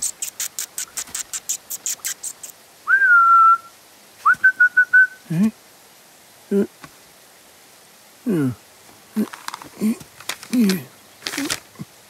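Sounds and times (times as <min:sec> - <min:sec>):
man whistling: 0:02.9 - 0:05.2
low vocal murmur: 0:06.5 - 0:06.8, 0:08.2 - 0:11.9.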